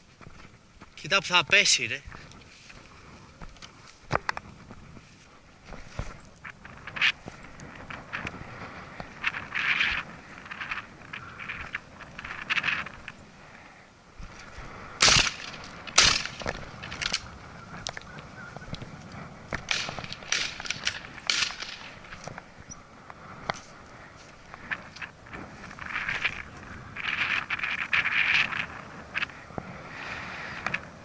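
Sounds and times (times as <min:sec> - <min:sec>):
soft rustles: 0:00.0 - 0:13.3, 0:14.2 - 0:31.0
shotgun shots: 0:15.0 - 0:16.6.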